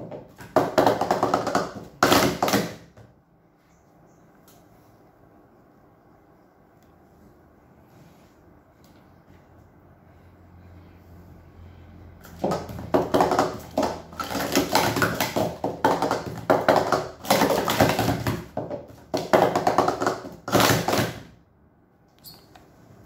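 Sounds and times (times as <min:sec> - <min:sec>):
plastic cups clattering: 0:00.0 - 0:03.0, 0:12.2 - 0:21.3.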